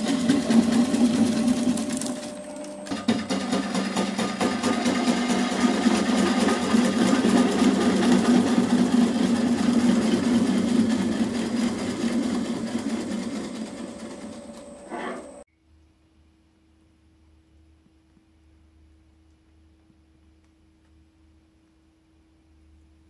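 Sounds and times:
gouge shaving wood on a lathe: 0:00.0 - 0:15.4.

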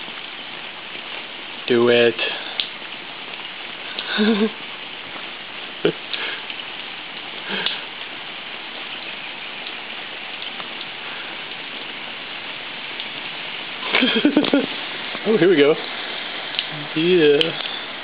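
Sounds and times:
rain and floodwater hissing: 0:00.0 - 0:18.0.

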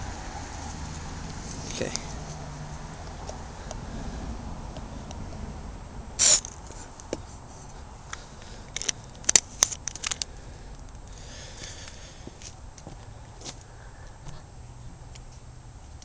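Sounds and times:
aerosol spray hiss: 0:06.2 - 0:06.5.

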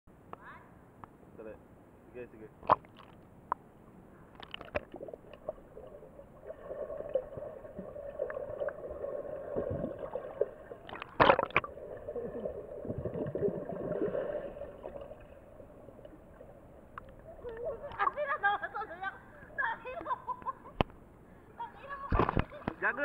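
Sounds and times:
underwater churning hum: 0:04.4 - 0:18.0
water gurgles and bubbles: 0:04.4 - 0:18.0.

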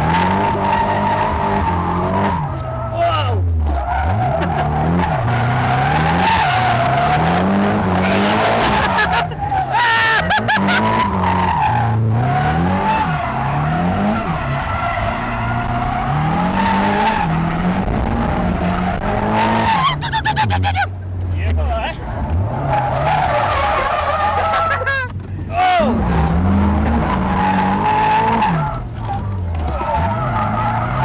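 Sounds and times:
car engine revving hard: 0:03.6 - 0:09.6, 0:10.2 - 0:20.0, 0:25.7 - 0:31.0
tyres squealing: 0:18.6 - 0:20.9, 0:22.5 - 0:31.0.

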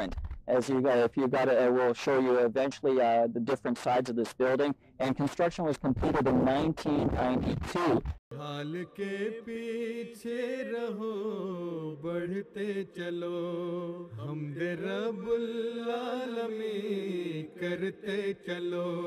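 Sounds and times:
person singing unaccompanied: 0:07.9 - 0:19.0.

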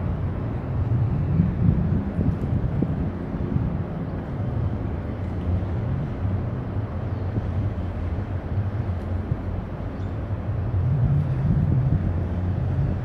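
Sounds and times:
low constant hum: 0:00.0 - 0:13.0
ship engine rumbling drone: 0:00.0 - 0:13.0.

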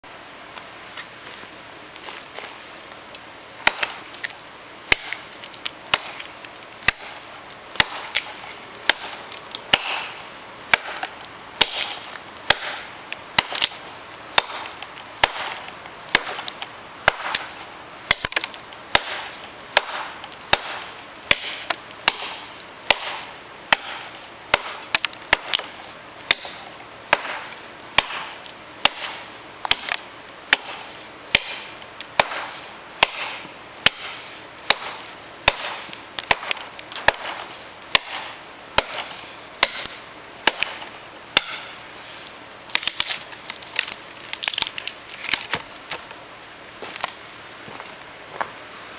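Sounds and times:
machete chopping into log: 0:03.6 - 0:04.0, 0:04.9 - 0:05.2, 0:07.8 - 0:13.8, 0:14.4 - 0:17.5, 0:18.1 - 0:25.7, 0:26.3 - 0:41.8.

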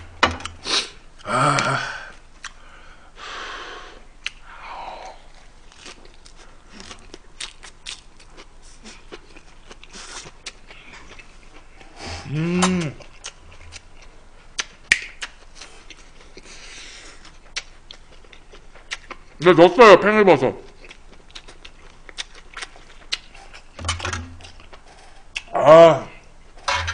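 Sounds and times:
man chewing: 0:00.4 - 0:02.6, 0:04.2 - 0:19.4, 0:20.7 - 0:25.5
man humming: 0:01.2 - 0:02.1, 0:12.0 - 0:13.1
mouth clicks: 0:12.1 - 0:13.8.

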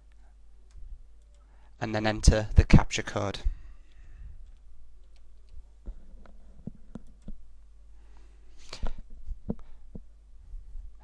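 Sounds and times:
faint low hum: 0:00.0 - 0:11.0
keyboard and mouse clicks: 0:03.9 - 0:07.4.

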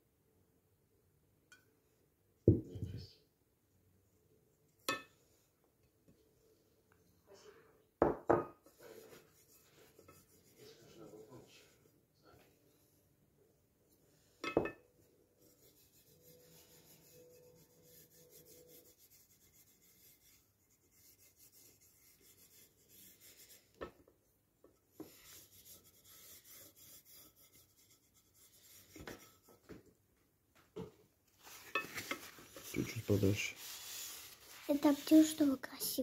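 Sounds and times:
fingers rubbing spoon: 0:15.4 - 0:23.6.

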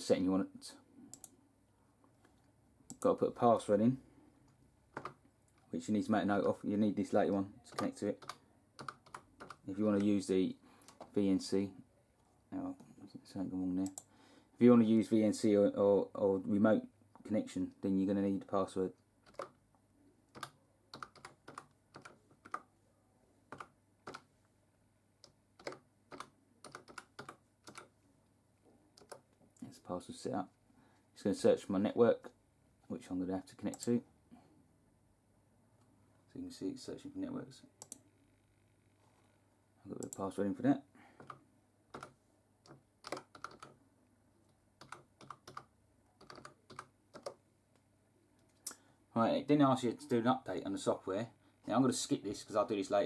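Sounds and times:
faint keyboard typing: 0:01.1 - 0:01.4, 0:02.0 - 0:03.2, 0:04.4 - 0:05.8, 0:06.4 - 0:11.2, 0:13.8 - 0:14.1, 0:18.9 - 0:19.6, 0:20.3 - 0:22.7, 0:23.5 - 0:24.4, 0:25.2 - 0:28.0, 0:28.6 - 0:29.7, 0:37.8 - 0:39.0, 0:39.9 - 0:40.4, 0:41.1 - 0:43.8, 0:44.4 - 0:48.8
faint keyboard keystrokes: 0:25.2 - 0:27.9, 0:41.2 - 0:43.8, 0:44.8 - 0:47.4.

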